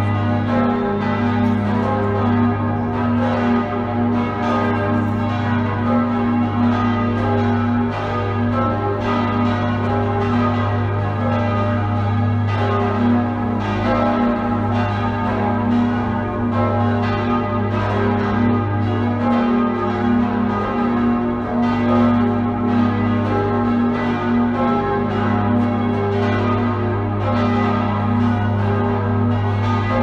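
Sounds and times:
church bells pealing: 0.0s - 30.0s.

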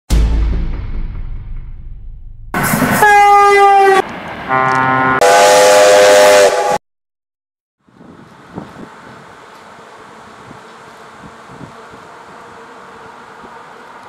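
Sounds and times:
steam locomotive whistle: 2.6s - 6.8s.

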